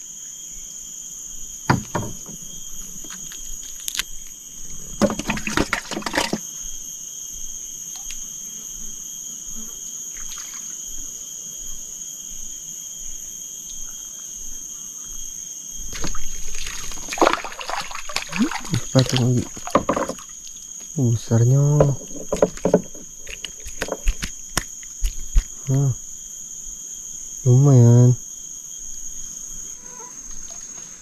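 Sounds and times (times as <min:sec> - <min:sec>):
high-pitched insect drone: 0:00.0 - 0:31.0
water splashing and trickling: 0:04.9 - 0:06.4, 0:15.9 - 0:20.8, 0:21.8 - 0:25.5.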